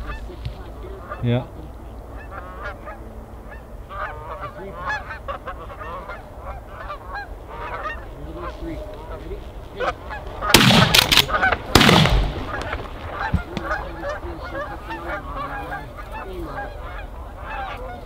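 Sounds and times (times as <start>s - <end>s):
geese honking: 0.0s - 18.0s
shotgun shots: 10.4s - 13.8s.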